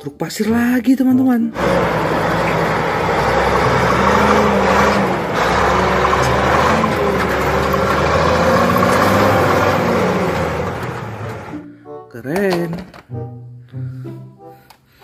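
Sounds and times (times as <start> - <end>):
truck engine droning under load: 1.6 - 11.6.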